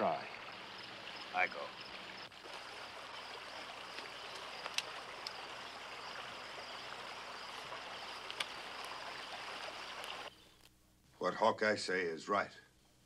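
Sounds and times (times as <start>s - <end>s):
stream running over rocks: 0.0s - 10.3s
sharp clicks: 4.0s - 5.4s, 8.2s - 8.6s.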